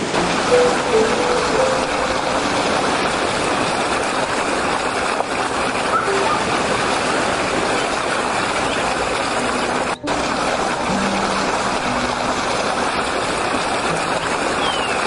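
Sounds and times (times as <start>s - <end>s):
stream rushing over rocks: 0.0s - 15.0s.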